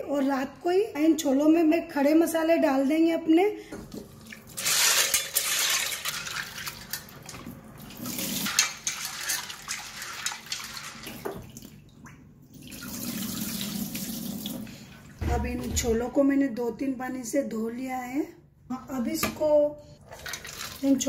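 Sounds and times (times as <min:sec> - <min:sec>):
water poured into steel sink: 0:07.8 - 0:11.6, 0:12.6 - 0:14.7
tap water running into pot: 0:12.6 - 0:14.7.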